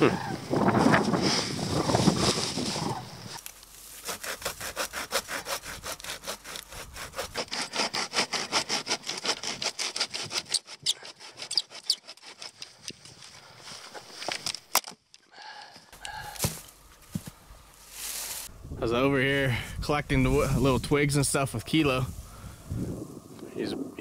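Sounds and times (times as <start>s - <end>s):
hand saw cutting wood: 3.9s - 13.0s.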